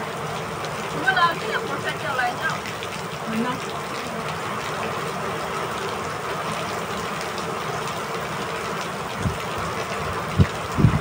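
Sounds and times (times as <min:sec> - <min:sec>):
steady rain rushing: 0:00.0 - 0:11.0.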